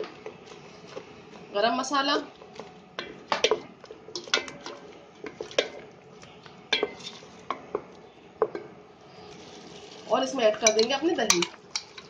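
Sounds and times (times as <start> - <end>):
masala frying: 0.0 - 12.0
spatula scraping metal pot: 6.8 - 7.4.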